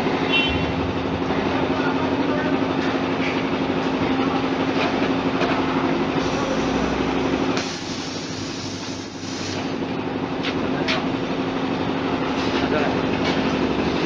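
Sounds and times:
machine hum: 0:00.0 - 0:07.6
rushing machine noise: 0:00.0 - 0:07.8.

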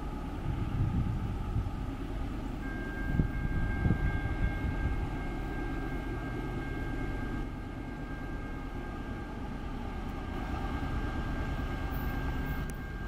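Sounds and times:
locomotive low rumble: 0:00.0 - 0:13.0
high two-note whine: 0:02.5 - 0:09.4, 0:10.9 - 0:13.0.

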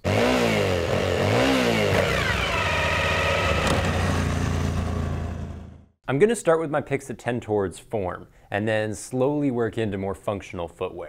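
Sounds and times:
motorcycle engine revving: 0:00.0 - 0:06.0.

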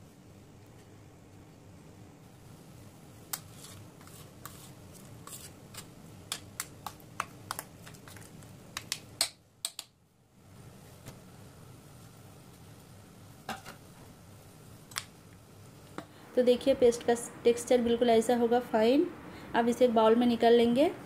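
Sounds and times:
low steady hum: 0:00.0 - 0:21.0
spatula scraping metal jar: 0:03.4 - 0:05.8.

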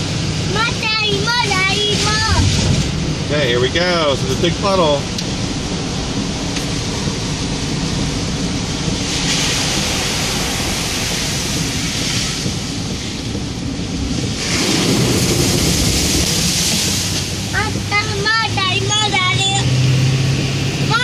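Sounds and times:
engine and road rumble: 0:00.0 - 0:21.0
water spray rushing: 0:08.1 - 0:21.0
tyre hiss on wet road: 0:08.7 - 0:18.8.

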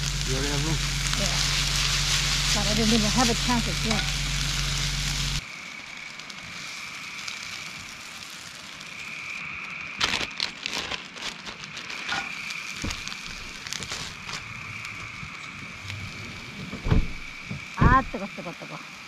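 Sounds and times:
plastic bag crinkling: 0:00.0 - 0:05.4, 0:10.0 - 0:14.6
food sizzling in skillet: 0:00.0 - 0:10.3, 0:11.7 - 0:16.2
wood fire crackling: 0:00.0 - 0:19.0.

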